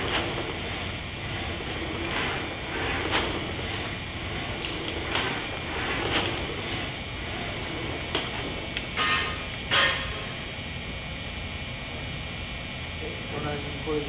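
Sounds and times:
grating sounds: 0.0s - 9.7s
mechanical hum: 0.0s - 14.0s.

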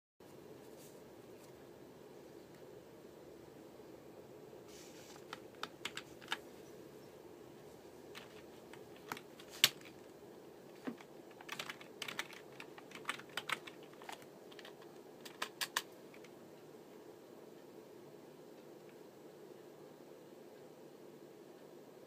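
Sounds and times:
low steady hum: 0.2s - 22.0s
keyboard key clicks: 10.8s - 16.3s.

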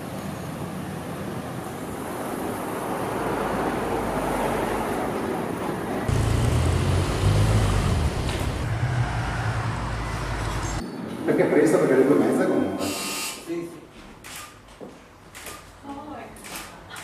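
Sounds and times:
passing cars: 0.0s - 11.1s.

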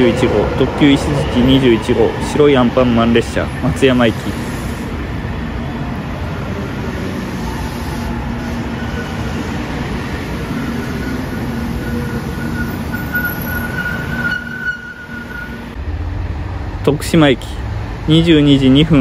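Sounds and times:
train wheels rumbling on rails: 0.0s - 19.0s
thin high squeal: 10.8s - 15.6s.

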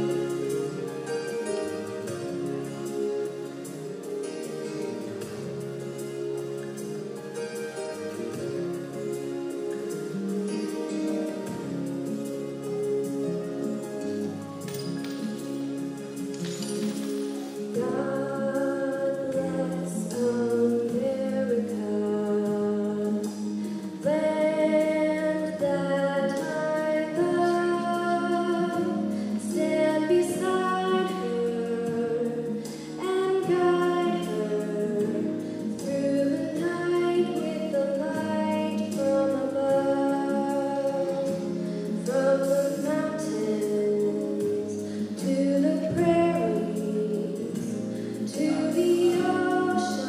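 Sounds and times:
woman singing into microphone: 17.7s - 50.0s.

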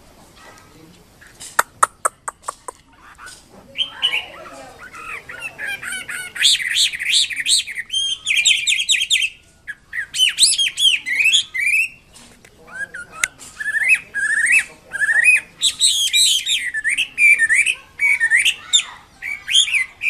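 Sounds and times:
sharp clicks: 1.4s - 3.4s
bird singing whistled notes: 3.2s - 12.1s, 12.7s - 20.0s.

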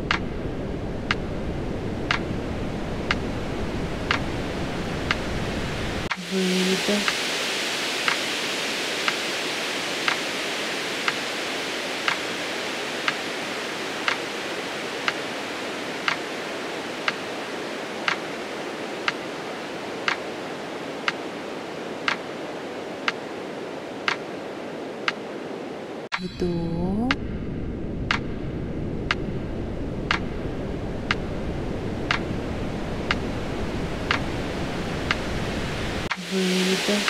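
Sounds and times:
steady rushing hiss: 0.0s - 26.2s, 27.0s - 37.0s.

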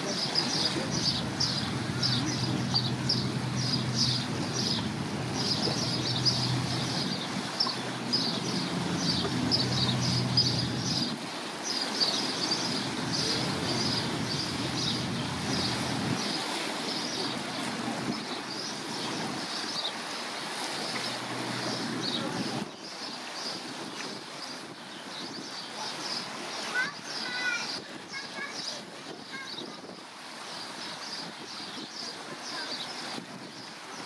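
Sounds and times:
water: 0.0s - 34.0s
wind: 0.0s - 34.0s
ship engine droning: 0.4s - 18.1s, 20.2s - 22.7s.

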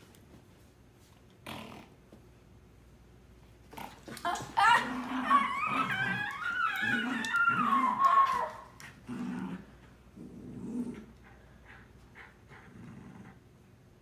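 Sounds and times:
puppy growling: 3.7s - 11.4s, 12.2s - 13.4s.

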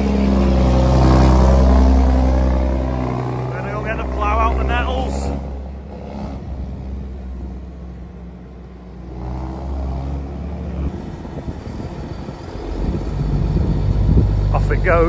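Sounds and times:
tractor engine running: 0.0s - 9.3s, 10.2s - 15.0s.

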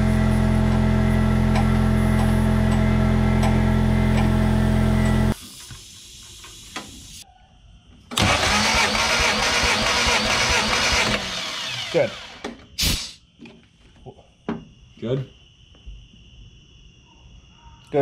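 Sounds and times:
engine cranking on starter: 8.1s - 12.6s.

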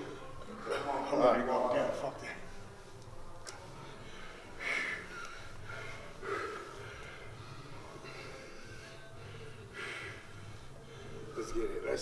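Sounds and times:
man breathing forcefully: 3.9s - 11.4s.

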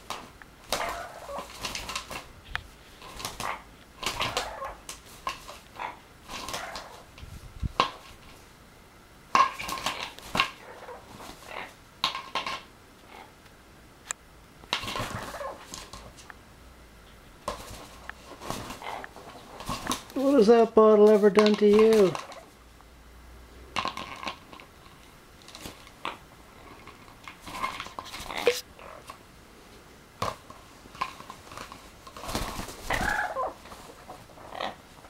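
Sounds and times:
parrot vocalizing: 0.7s - 1.6s, 3.4s - 4.8s, 5.7s - 7.1s, 9.9s - 11.8s, 13.0s - 13.4s, 14.9s - 15.7s, 18.7s - 19.6s, 28.1s - 29.1s, 32.9s - 34.9s.

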